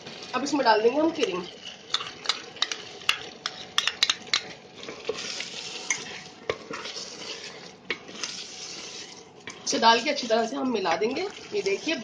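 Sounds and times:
gravy sizzling: 0.0 - 12.0
spatula stirring thick gravy: 1.6 - 12.0
spatula knocking against pot: 2.0 - 4.5.

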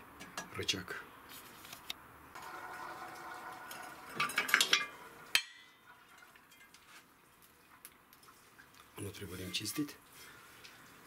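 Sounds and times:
metal parts clanking on steel: 4.1 - 5.6.

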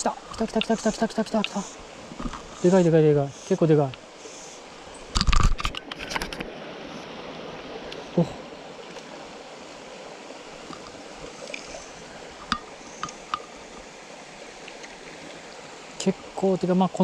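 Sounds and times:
stream trickling: 0.0 - 17.0
knocks and rustles near microphone: 2.1 - 2.6.

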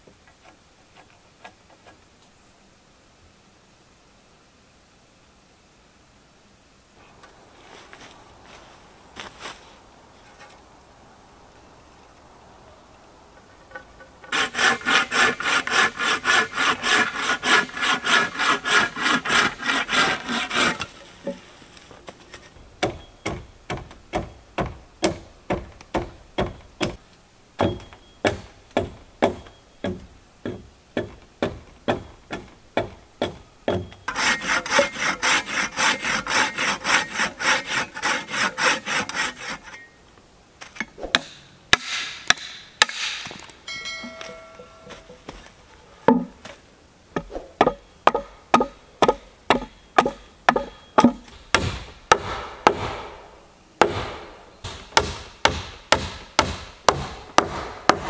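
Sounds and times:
hand saw cutting wood: 14.2 - 21.4, 34.1 - 39.9
wooden knocks: 46.1 - 46.4.

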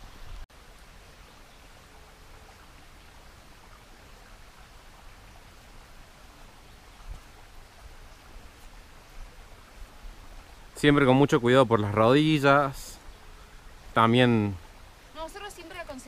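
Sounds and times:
stream water rushing: 0.0 - 16.0.

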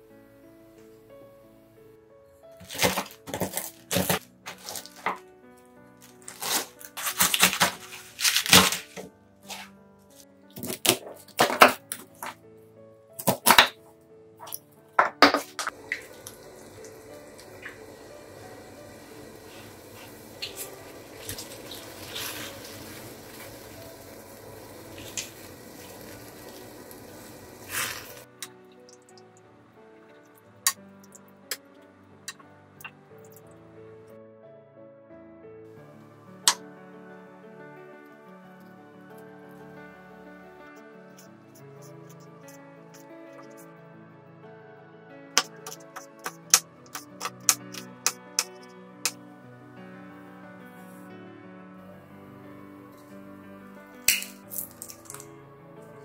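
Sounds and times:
instrumental background music: 0.0 - 56.0
nuts crunching under rolling pin: 2.6 - 5.2, 6.1 - 9.7, 13.2 - 13.8
water boiling in a pot: 2.6 - 5.2, 15.6 - 31.7
plastic bag crinkling: 2.6 - 5.3, 6.0 - 9.7, 54.1 - 55.3
food splashing into water: 14.4 - 18.6, 54.1 - 55.3.

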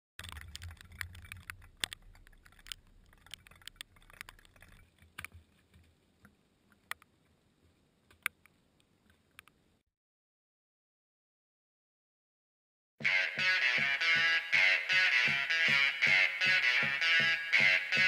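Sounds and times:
raindrops ticking on camera housing: 0.2 - 7.4.

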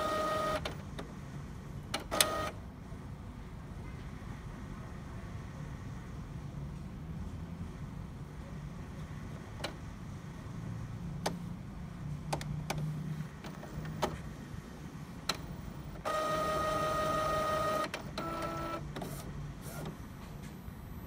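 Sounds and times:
printer motor whining: 0.0 - 0.8, 2.0 - 2.6, 15.2 - 20.2.

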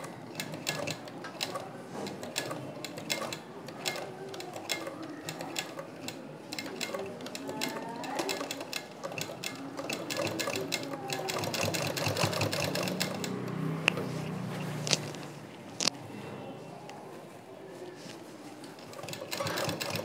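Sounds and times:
hand-turned sewing machine clicking: 0.0 - 14.0, 18.8 - 20.0.

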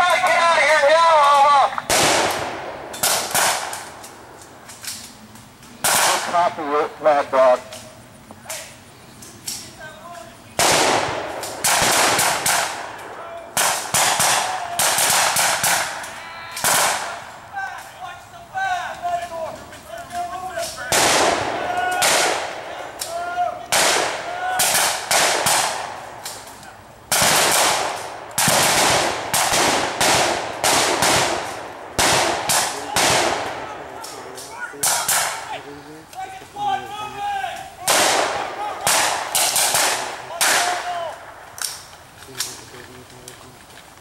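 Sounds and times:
rifle shots with echo: 0.5 - 4.3, 5.8 - 7.5, 10.6 - 16.0, 16.6 - 17.2, 20.9 - 23.0, 23.7 - 26.4, 27.1 - 34.2, 37.8 - 41.4.

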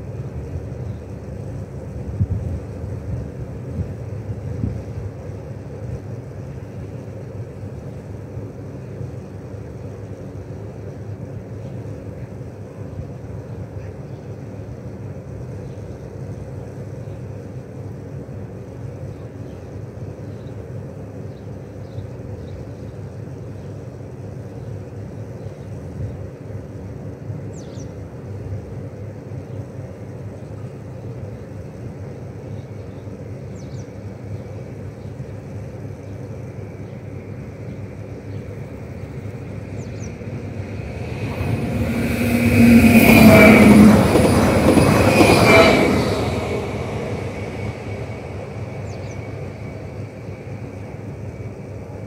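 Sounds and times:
low outdoor rumble: 34.4 - 52.0.

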